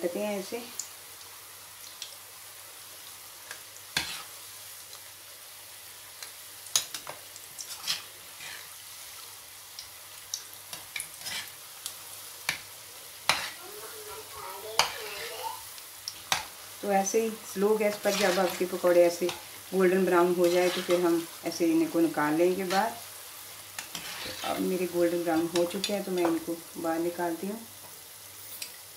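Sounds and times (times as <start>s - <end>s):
food sizzling in hot oil: 0.0s - 28.9s
metal spoon scraping a pan: 4.0s - 4.3s, 6.8s - 8.7s, 10.7s - 11.6s, 13.2s - 13.6s, 14.8s - 15.3s, 17.9s - 19.5s, 20.2s - 21.3s, 23.8s - 26.5s.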